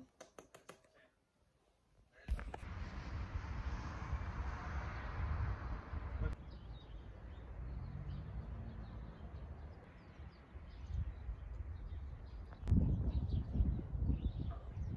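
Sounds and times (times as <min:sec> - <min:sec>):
wind rumble on microphone: 0:02.4 - 0:08.2, 0:10.0 - 0:14.9.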